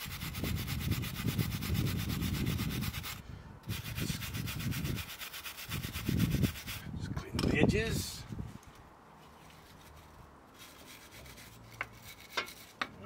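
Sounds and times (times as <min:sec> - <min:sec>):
wire brush scrubbing metal: 0:00.0 - 0:06.8, 0:09.6 - 0:13.0.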